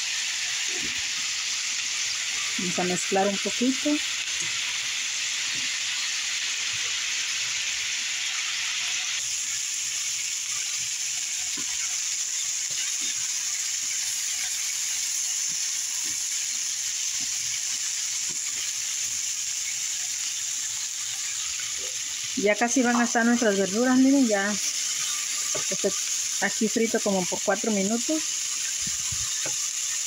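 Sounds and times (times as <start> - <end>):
vegetables sizzling in oil: 0.0 - 30.0
spatula scraping a pan: 10.5 - 18.8.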